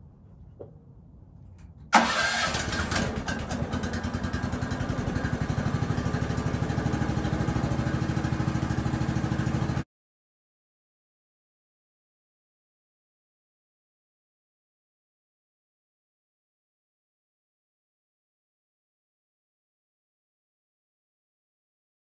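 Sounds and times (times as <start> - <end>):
engine starting and idling: 1.9 - 9.8.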